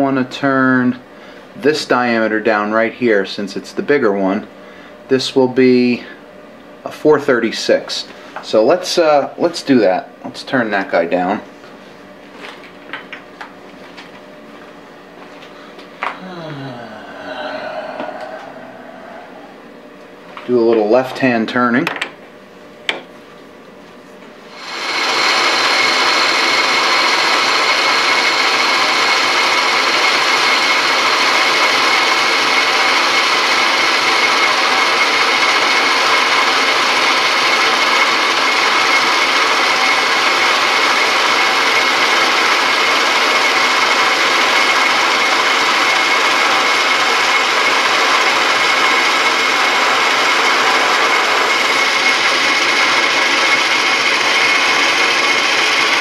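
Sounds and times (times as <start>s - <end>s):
lathe whine: 13.4s - 21.4s, 24.4s - 56.0s.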